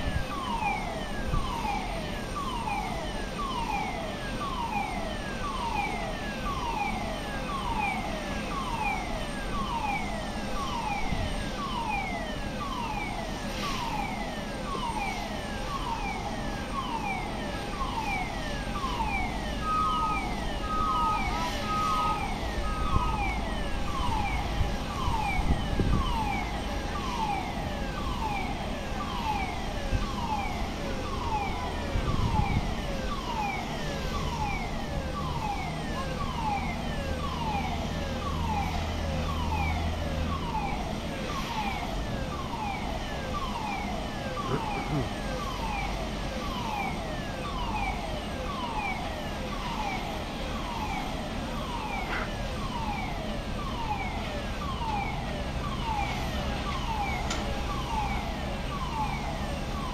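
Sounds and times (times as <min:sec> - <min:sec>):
siren-like sweeping electronic tone: 0:00.0 - 0:59.9.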